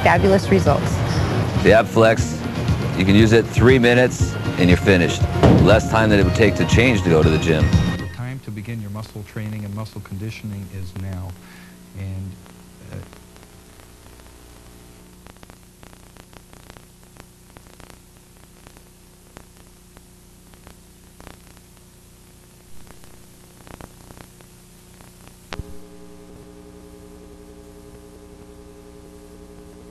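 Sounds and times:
steady electrical tones: 0.0s - 18.0s, 22.6s - 29.9s
electrical hum and hiss: 0.0s - 29.9s
small clicks and crackles: 12.4s - 25.7s.

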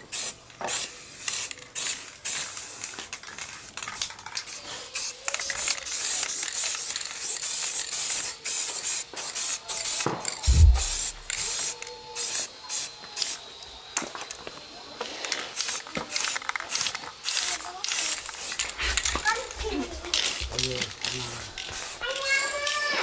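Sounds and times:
spray gun hissing in bursts: 4.5s - 13.4s, 15.6s - 19.6s, 20.2s - 23.0s
low thump: 10.5s - 11.4s.

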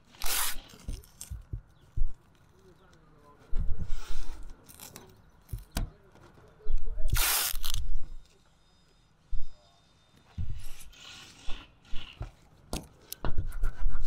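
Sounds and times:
harsh tape rip: 0.0s - 1.4s, 7.1s - 7.9s
knocks and bumps of handling: 0.8s - 2.4s
masking tape pulled off roll: 7.1s - 7.9s.

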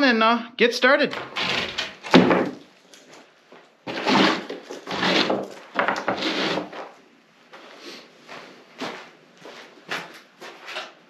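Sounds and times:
plywood scraping on dirt floor: 1.1s - 2.6s, 3.8s - 7.0s.

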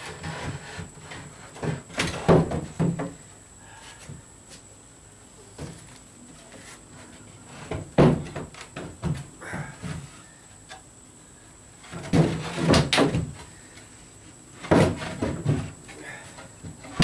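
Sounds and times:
wooden boards knocking and thumping: 0.2s - 3.2s, 7.6s - 10.1s, 11.8s - 13.4s, 14.6s - 15.8s.

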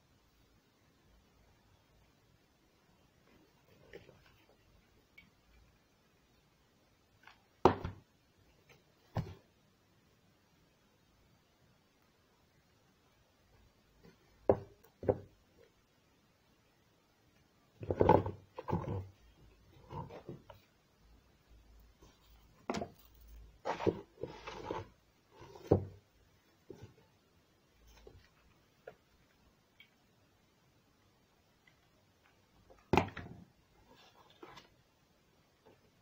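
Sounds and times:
cardboard rustling: 22.0s - 26.0s.

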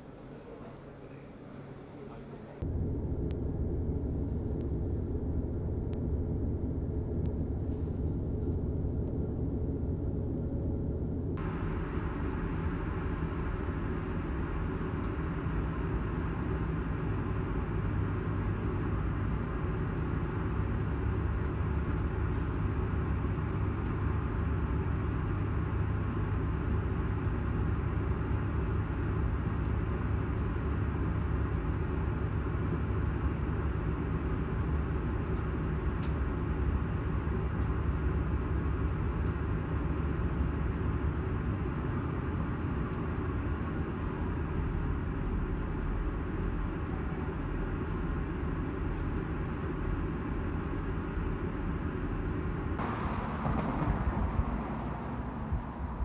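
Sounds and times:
train rumbling inside carriage: 0.0s - 11.4s, 52.8s - 56.0s.

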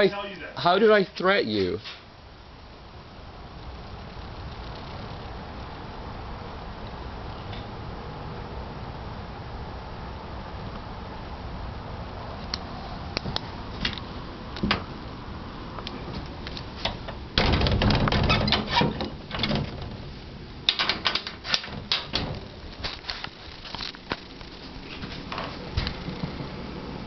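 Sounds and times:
rustling: 15.9s - 26.4s.

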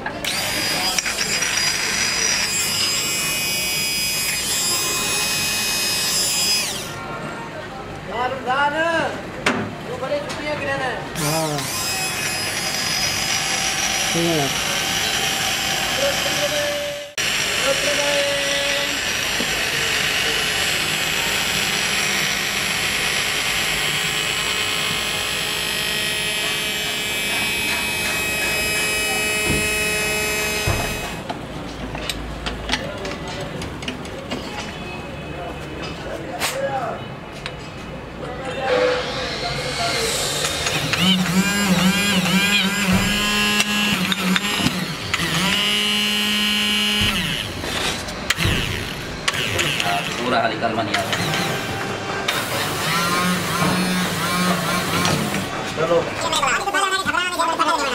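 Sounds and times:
machine whining hum: 0.2s - 7.1s, 11.1s - 31.3s, 38.7s - 56.6s.

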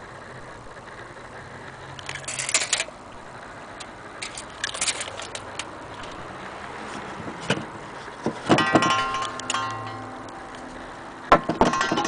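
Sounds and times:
loud knock: 11.3s - 12.0s.

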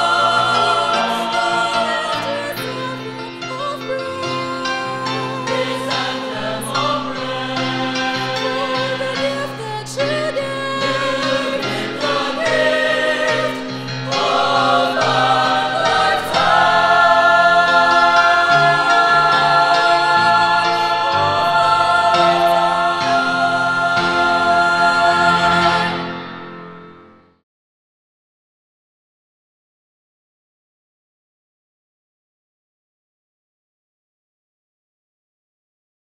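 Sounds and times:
choir singing gospel song: 0.0s - 26.7s
piano accompaniment: 0.0s - 27.4s.

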